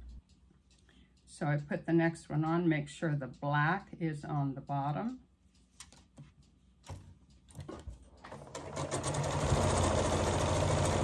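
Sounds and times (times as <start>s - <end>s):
sewing machine stitching: 8.2s - 11.0s.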